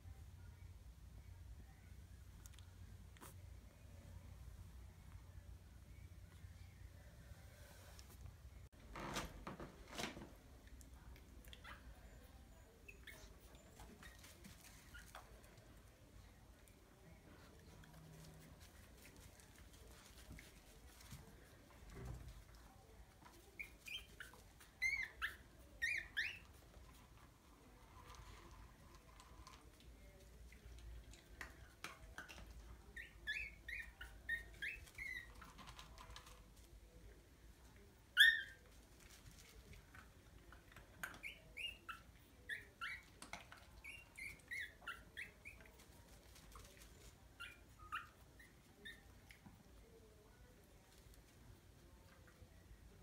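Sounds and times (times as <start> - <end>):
puppies squeaking: 11.5 - 15.4, 23.3 - 26.7, 32.2 - 35.8, 38.1 - 38.7, 41.0 - 45.9, 46.6 - 49.4.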